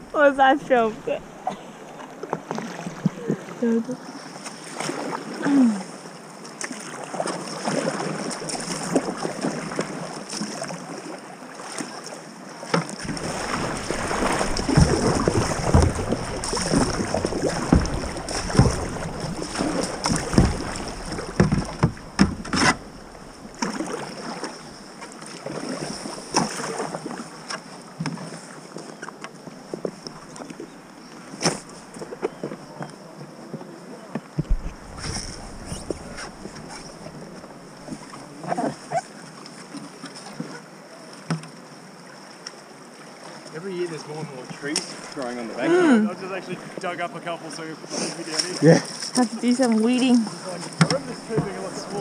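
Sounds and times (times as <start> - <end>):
paddle blades splashing: 0.0 - 52.0
water slapping against hull: 0.6 - 3.6, 6.5 - 32.7, 34.2 - 40.6, 46.2 - 52.0
wind on microphone: 34.4 - 38.0.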